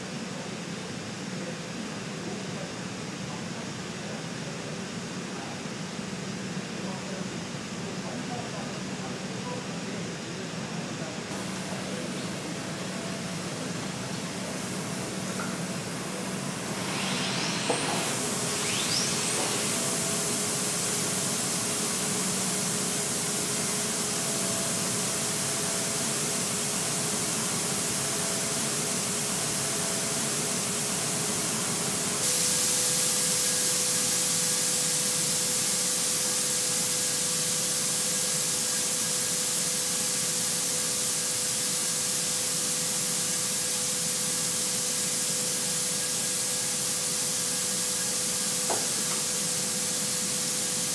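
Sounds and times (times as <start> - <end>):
paint spray hissing: 11.4 - 35.3.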